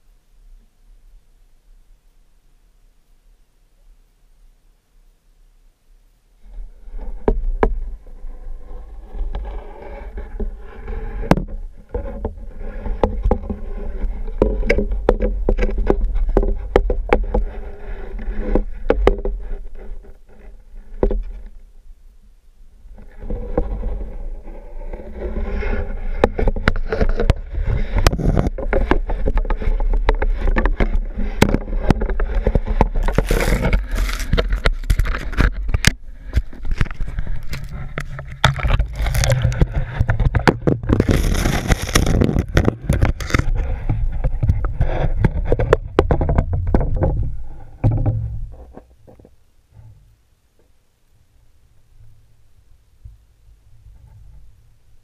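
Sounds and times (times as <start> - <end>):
muffled underwater rumble: 6.4 - 50.2.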